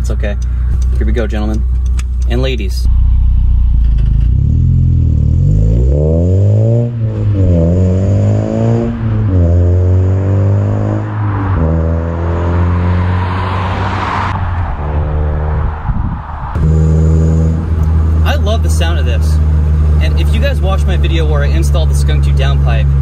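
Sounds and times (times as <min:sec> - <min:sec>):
car engine accelerating hard: 0:02.9 - 0:15.9.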